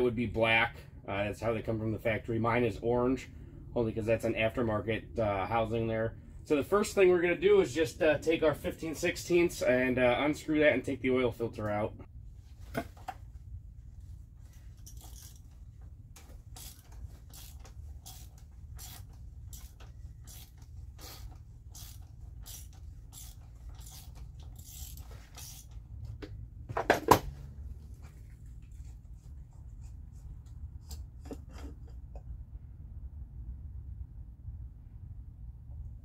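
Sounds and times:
socket ratchet clicking: 16.6s - 25.8s.

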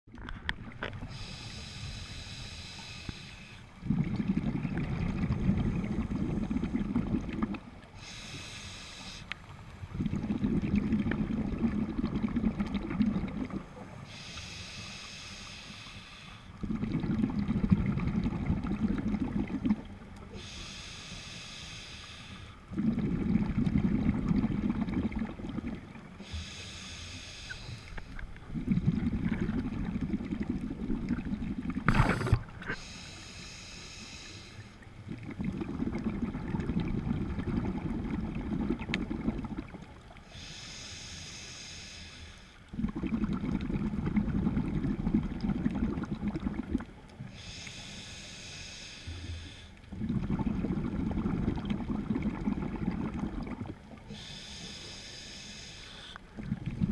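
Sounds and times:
regulator hiss on inhale: 1.0s - 3.8s, 7.9s - 9.6s, 13.9s - 16.8s, 20.2s - 22.7s, 26.2s - 28.2s, 31.9s - 34.9s, 40.2s - 42.7s, 47.2s - 50.0s, 54.0s - 56.4s
bubbling exhaust: 42.7s - 46.9s.

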